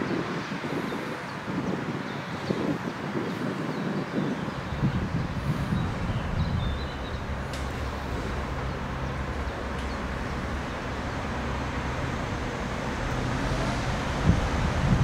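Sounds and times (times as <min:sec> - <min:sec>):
wind buffeting microphone: 0:00.0 - 0:15.0
diesel train engines droning: 0:04.4 - 0:15.0.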